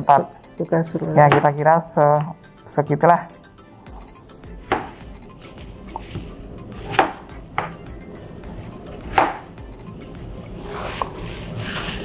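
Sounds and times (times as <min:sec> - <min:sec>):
knife chopping on plastic board: 0:01.3 - 0:01.5, 0:04.6 - 0:05.0, 0:06.0 - 0:07.9, 0:09.0 - 0:09.5.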